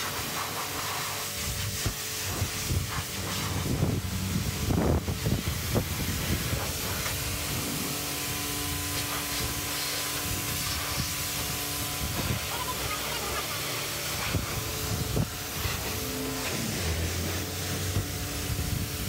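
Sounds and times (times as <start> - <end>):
pressure washer spraying: 0.0 - 19.0.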